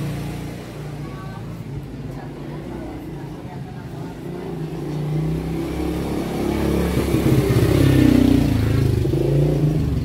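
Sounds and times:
motorcycle engine passing: 0:04.2 - 0:10.0.

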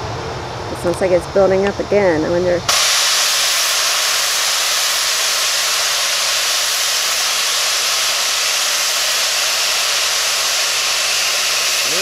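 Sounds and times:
gas venting hiss: 0:02.6 - 0:12.0.

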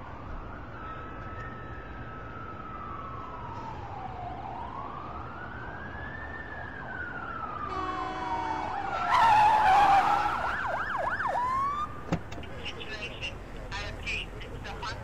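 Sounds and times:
police siren wailing: 0:00.0 - 0:12.0
tire screech: 0:08.6 - 0:10.7.

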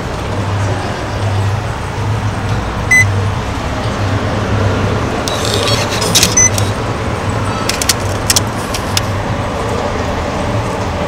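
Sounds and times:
short electronic beep: 0:02.9 - 0:03.1.

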